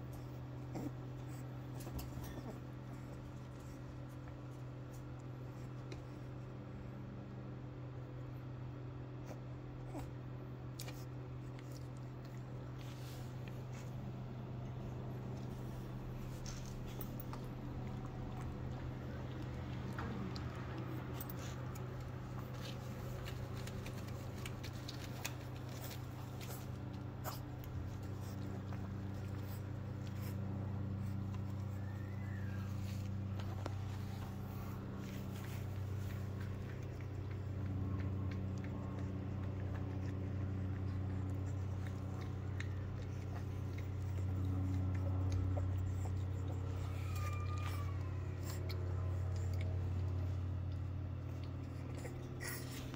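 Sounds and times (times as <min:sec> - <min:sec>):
steady low hum: 0:00.0 - 0:52.9
puppy eating from plastic bowl: 0:10.6 - 0:47.6
puppy shuffling on carpet: 0:12.5 - 0:18.6, 0:21.2 - 0:37.2.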